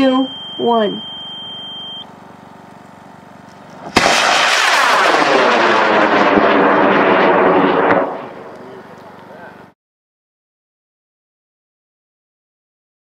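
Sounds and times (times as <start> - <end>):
high electronic beep: 0.0 - 2.1
rocket motor roaring: 2.0 - 9.7.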